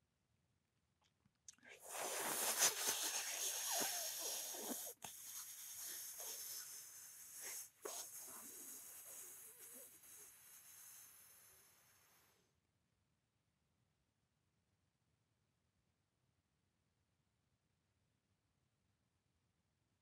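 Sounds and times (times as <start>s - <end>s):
breathing through pursed lips: 1.8s - 12.3s.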